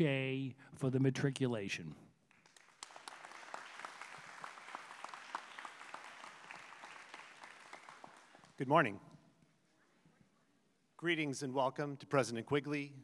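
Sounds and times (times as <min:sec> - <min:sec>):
audience applauding: 0:02.3 - 0:08.6.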